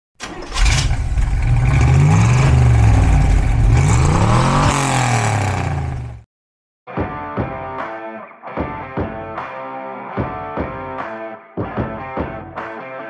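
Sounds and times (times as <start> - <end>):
car engine revving: 0.2 - 6.2.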